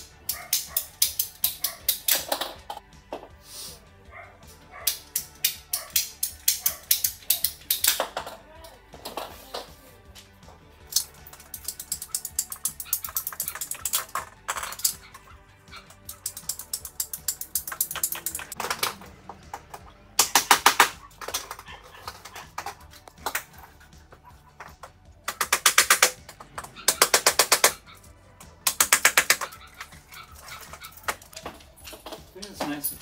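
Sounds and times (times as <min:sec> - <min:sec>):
ratcheting pipe cutter clicking: 0:00.2 - 0:02.4, 0:04.9 - 0:08.1, 0:10.9 - 0:15.1, 0:15.9 - 0:18.6, 0:28.6 - 0:29.9.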